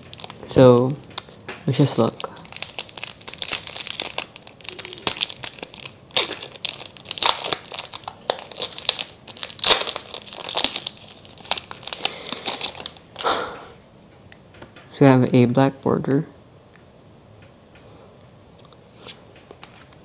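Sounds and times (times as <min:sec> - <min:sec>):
foil wrapper tearing and crinkling: 0:00.0 - 0:00.5, 0:01.2 - 0:13.3.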